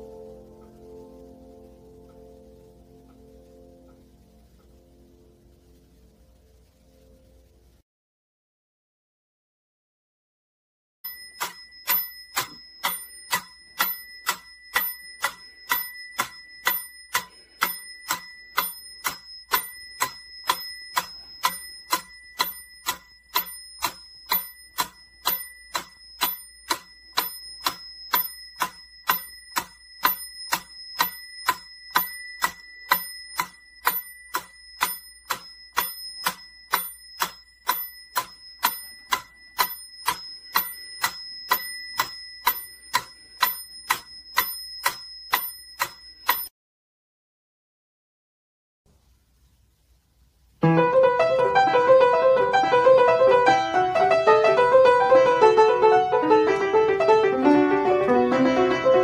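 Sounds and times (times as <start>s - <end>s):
metronome ticking: 11.1s - 46.5s, 50.6s - 59.0s.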